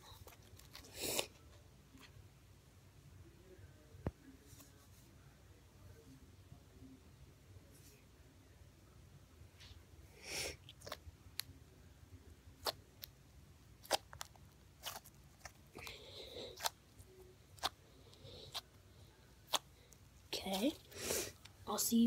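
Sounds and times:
slime squelching: 0:10.6 - 0:11.5, 0:12.6 - 0:21.6.

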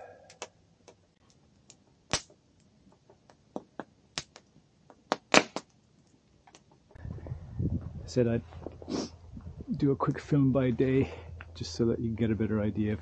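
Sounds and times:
campfire crackling and popping: 0:00.0 - 0:07.0.

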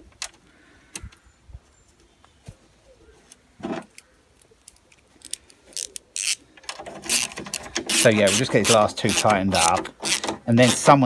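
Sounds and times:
washers and nuts clinking: 0:06.7 - 0:11.0
metal rubbing: 0:07.0 - 0:11.0.

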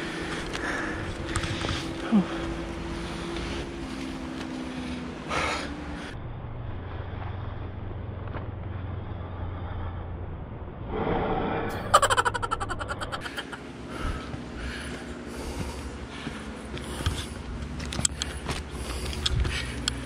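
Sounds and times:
person breathing heavily: 0:00.0 - 0:06.2, 0:09.0 - 0:20.0
low steady rumble: 0:06.0 - 0:20.0.

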